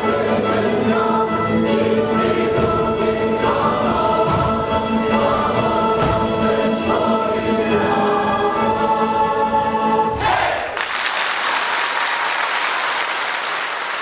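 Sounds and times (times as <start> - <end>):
audience applause: 10.7 - 14.0.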